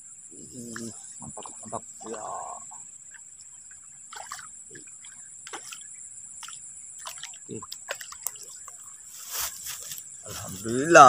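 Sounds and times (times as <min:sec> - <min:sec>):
fish splashing at water surface: 0:01.6 - 0:08.8.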